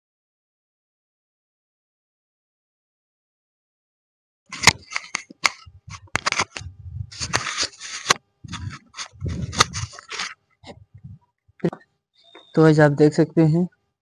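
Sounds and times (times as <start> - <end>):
handling clicks scrapes and rustles: 4.5 - 10.8.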